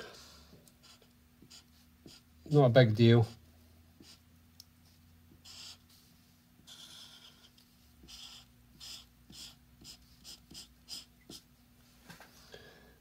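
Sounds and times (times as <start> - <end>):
marker pen rubbing on paper: 0.8 - 2.6, 4.0 - 11.5.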